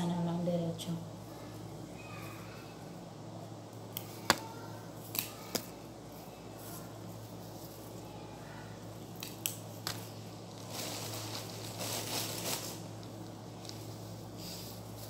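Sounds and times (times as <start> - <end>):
stems snapping: 3.9 - 5.7, 9.2 - 10.1
leaves and stems rustling: 9.2 - 15.0.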